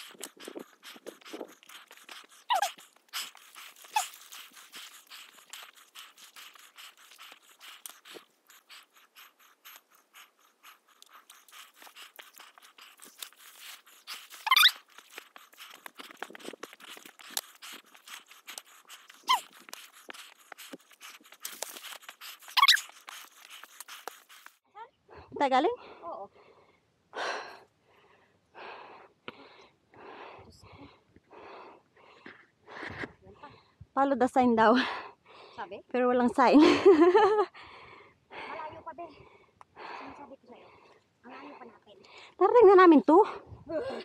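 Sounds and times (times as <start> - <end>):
shrubs brushing: 0.0 - 24.6
short squeaky sounds: 2.4 - 2.8, 14.2 - 14.9, 19.1 - 19.6, 22.4 - 24.4.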